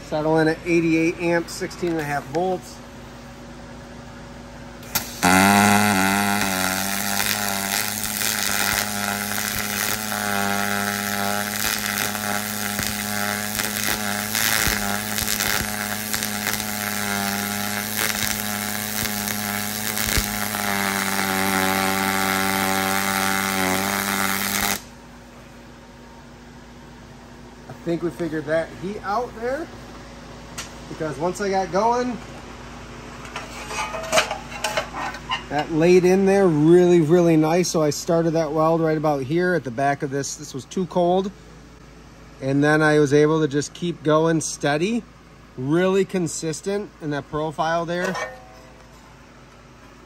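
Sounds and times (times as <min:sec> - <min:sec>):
welding arc crackling hiss: 0:04.8 - 0:24.9.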